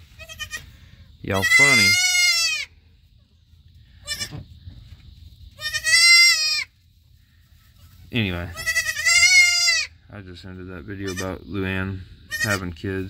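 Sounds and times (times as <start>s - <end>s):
goat kid bleating: 0.0s - 2.7s, 4.0s - 4.4s, 5.5s - 6.8s, 8.4s - 10.0s, 11.0s - 11.4s, 12.3s - 12.8s.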